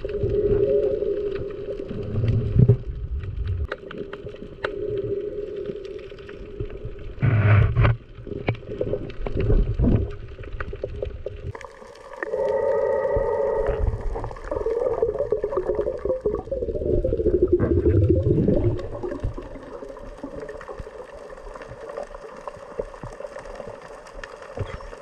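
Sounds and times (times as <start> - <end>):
low water rumbles: 0.0 - 25.0
underwater hum: 0.0 - 25.0
sharp underwater clicks: 1.2 - 16.4.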